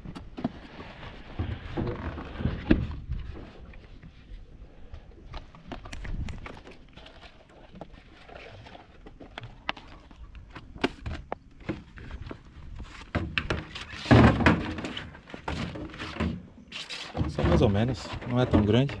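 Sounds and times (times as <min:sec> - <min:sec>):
knocks and thumps on boat: 0:10.5 - 0:19.0.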